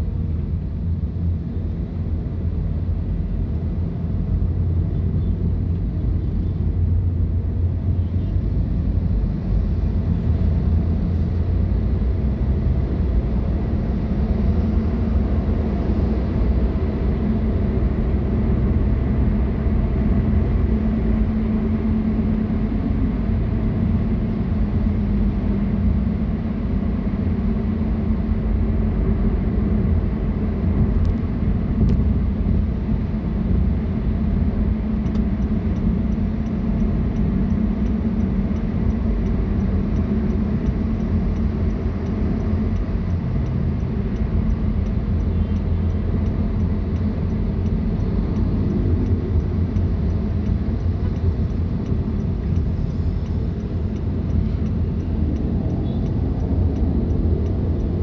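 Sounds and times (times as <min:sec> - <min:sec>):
car engine and road noise: 0:00.0 - 0:58.0
faint regular ticking: 0:35.0 - 0:58.0.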